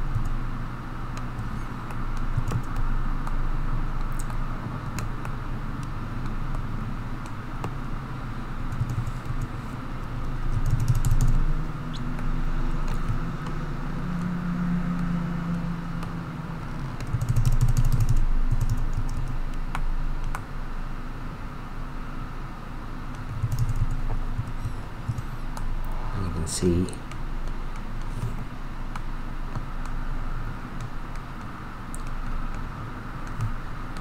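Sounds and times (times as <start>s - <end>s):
steady low rumble: 0.0s - 34.0s
keyboard and mouse clicks: 1.1s - 3.4s, 4.0s - 6.6s, 10.5s - 13.6s, 17.0s - 20.5s, 23.1s - 25.7s, 30.8s - 32.6s, 33.2s - 34.0s.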